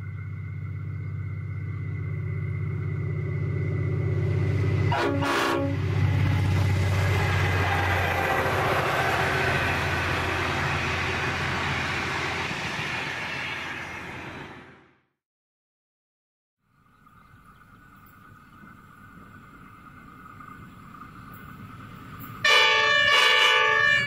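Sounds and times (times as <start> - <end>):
train wagons rumbling past: 0.0 - 15.0, 17.1 - 24.0
diesel locomotive engine droning: 0.0 - 15.2, 16.6 - 24.0
locomotive horn blast: 4.8 - 6.2, 22.4 - 24.0.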